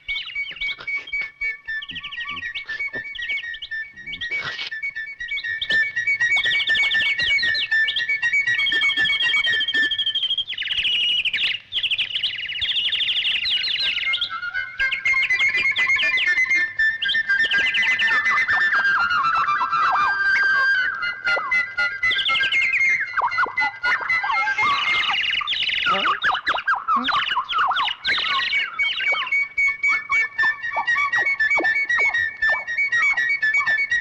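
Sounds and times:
cartoon bird chirping trills: 0:00.0 - 0:34.0
whistle-like tones: 0:00.0 - 0:34.0
music: 0:00.3 - 0:10.2, 0:13.4 - 0:26.2, 0:27.9 - 0:34.0.

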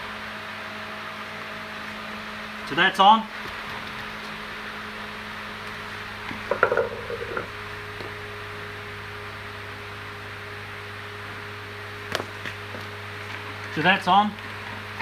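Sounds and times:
steady hum and hiss: 0:00.0 - 0:15.0
knocks and clunks: 0:06.4 - 0:07.5.

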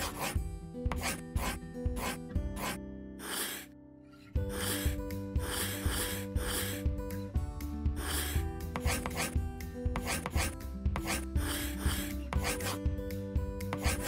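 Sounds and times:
drawing strokes on paper: 0:00.0 - 0:03.7, 0:04.4 - 0:07.0, 0:07.9 - 0:09.4, 0:10.0 - 0:12.9, 0:13.7 - 0:14.0
background music with held notes: 0:00.0 - 0:14.0.

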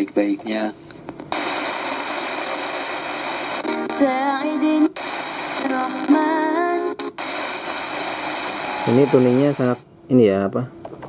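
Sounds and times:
radio static hiss: 0:01.3 - 0:09.9.

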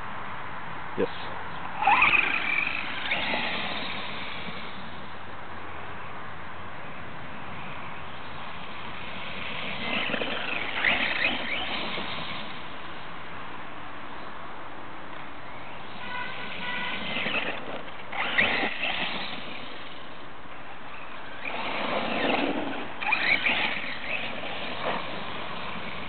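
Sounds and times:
electric toy truck motor whining: 0:01.8 - 0:04.9, 0:09.2 - 0:12.7, 0:16.4 - 0:20.0, 0:21.3 - 0:26.0.

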